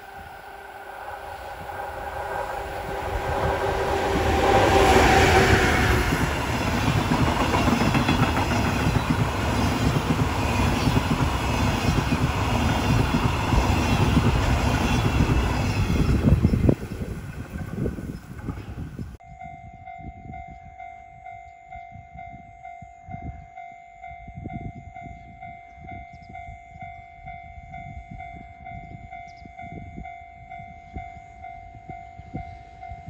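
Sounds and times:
electric locomotive whine: 0.0 - 33.0
train wheels clattering over rails: 2.1 - 18.9.

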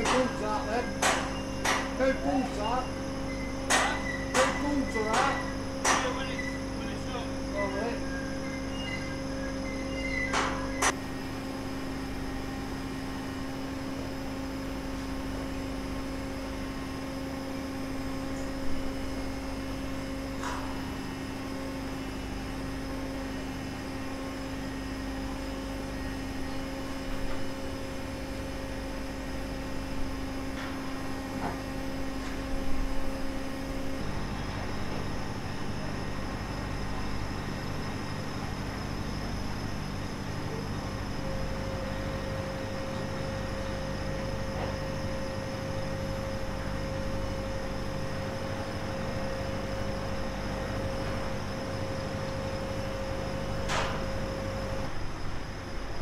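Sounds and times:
scattered knocks: 0.0 - 0.4, 1.0 - 2.0, 3.7 - 6.2
machinery droning: 0.0 - 56.0.

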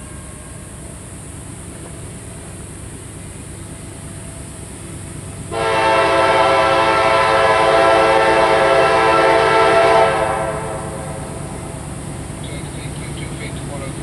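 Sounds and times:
locomotive horn blowing: 0.0 - 1.0, 5.5 - 11.8
train rumbling: 0.0 - 14.0.

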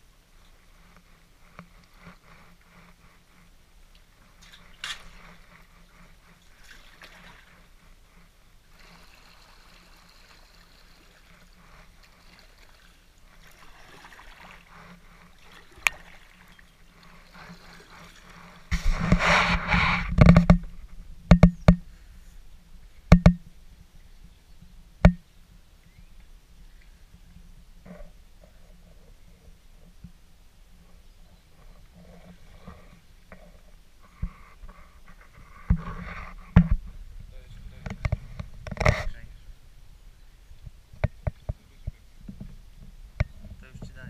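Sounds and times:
water dripping off paddle: 15.3 - 18.4
sharp knocks: 23.1 - 23.4.

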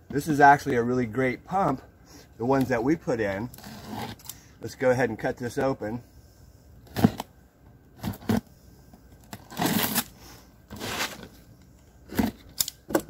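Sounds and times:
box cutter slitting tape: 3.5 - 4.4, 6.9 - 7.3, 8.0 - 8.5, 9.2 - 11.3, 12.1 - 13.0.

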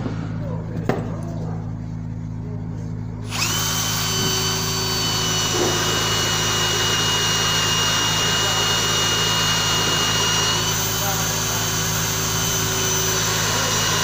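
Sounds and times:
cordless drill whining: 3.2 - 14.0.

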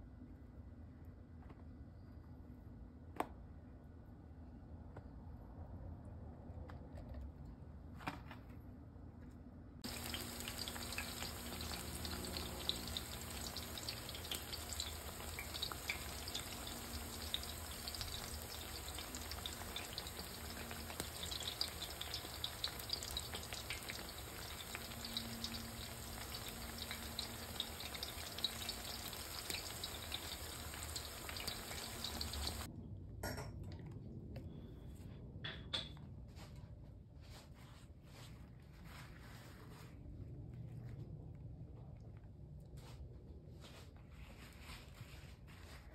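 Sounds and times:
eggplant sizzling and crackling: 9.8 - 32.7.

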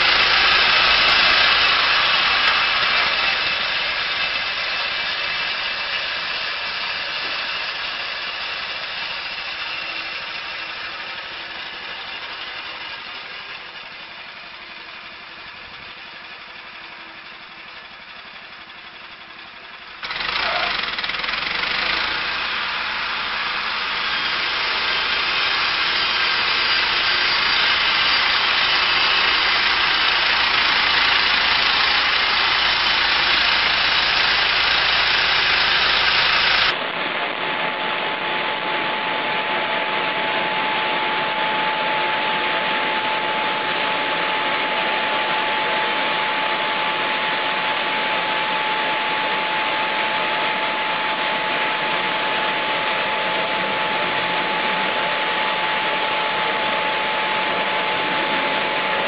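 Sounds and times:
saw blade hissing through log: 0.0 - 13.7, 20.0 - 36.8
petrol engine running: 0.0 - 59.0.

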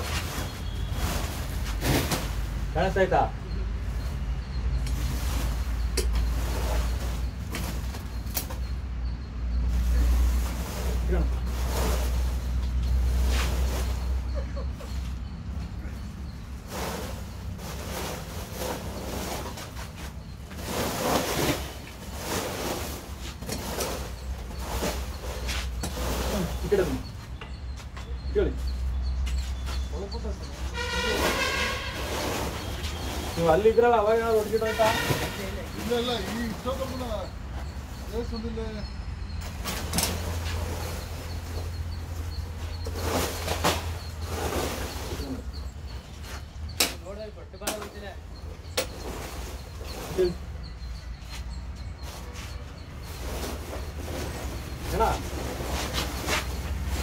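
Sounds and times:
plastic sacks rustling: 0.0 - 2.9, 16.5 - 27.1.

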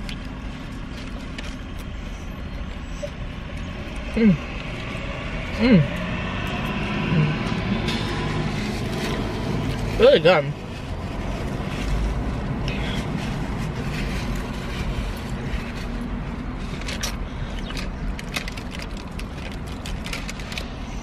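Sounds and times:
low hum in car cabin: 0.0 - 21.0
paper wrapper crinkling: 7.8 - 21.0.

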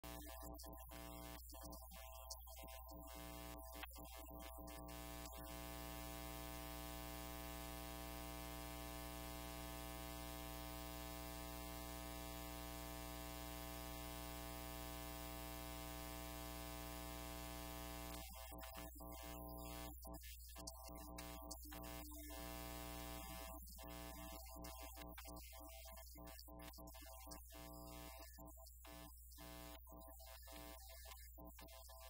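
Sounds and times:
electrical mains hum with hiss: 0.1 - 20.1.

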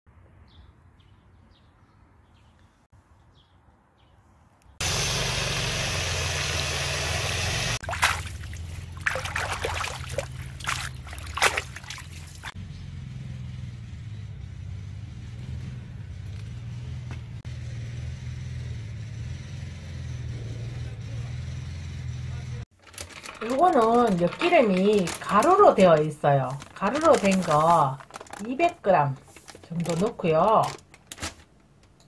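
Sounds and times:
water rushing: 4.8 - 12.6
hands splashing water in basin: 7.8 - 12.6.

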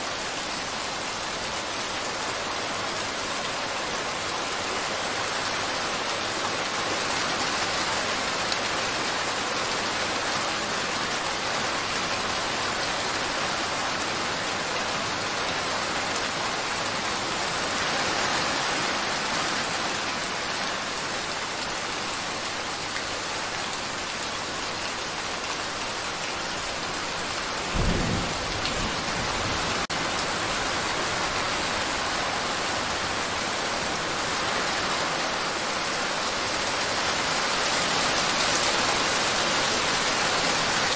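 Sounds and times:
steady rain: 0.0 - 40.9
low rumble of thunder: 27.7 - 29.8.

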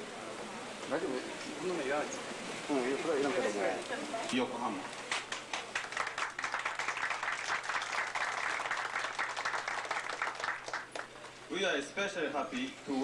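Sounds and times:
audience applauding: 5.1 - 11.2.

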